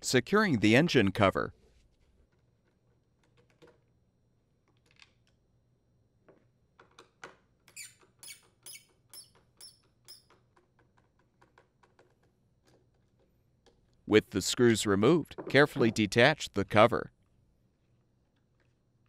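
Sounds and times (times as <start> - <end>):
screw squeaking: 7.7 - 10.5.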